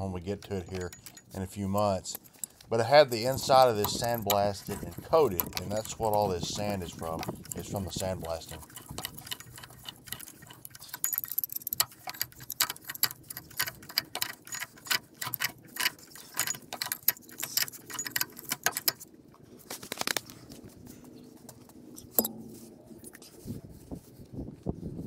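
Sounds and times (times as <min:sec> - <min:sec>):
pipe wrench clicking on metal pipe: 0:03.2 - 0:19.0.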